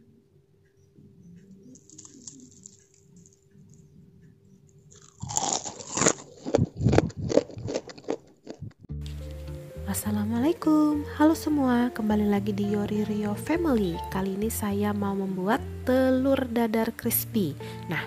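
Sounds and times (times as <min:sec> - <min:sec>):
crunchy chewing: 0:01.2 - 0:08.9.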